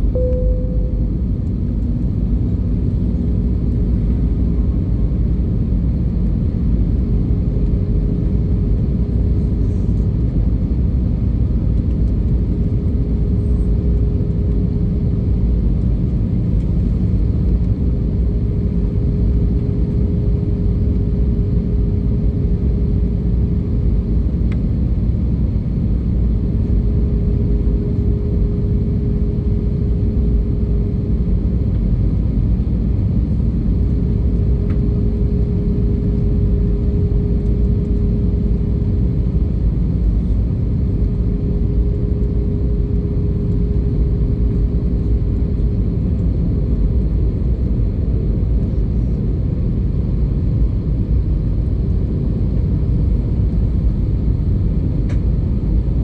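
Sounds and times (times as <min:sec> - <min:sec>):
thin droning tone: 0:00.0 - 0:02.1
airplane engine and airflow roar: 0:00.0 - 0:56.0.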